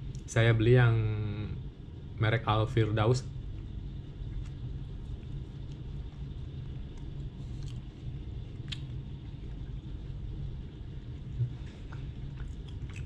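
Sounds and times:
low background hum: 0.0 - 13.0
person chewing bread: 3.5 - 13.0.

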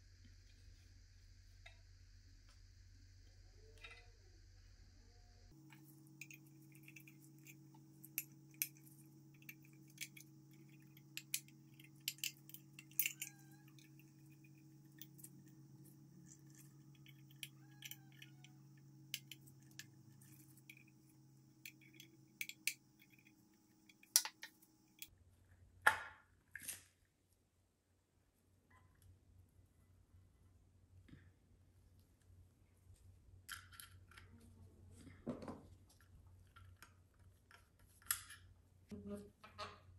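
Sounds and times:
small metallic clicks and taps: 5.6 - 25.1.

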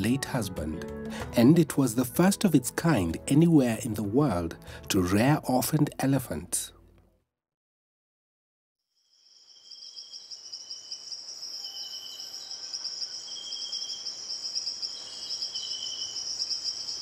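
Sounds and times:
crickets trilling: 9.0 - 17.0.

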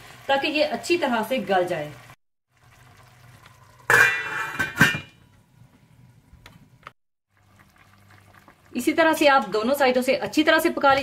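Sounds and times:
metal utensil scraping cooking pot: 3.9 - 5.2.

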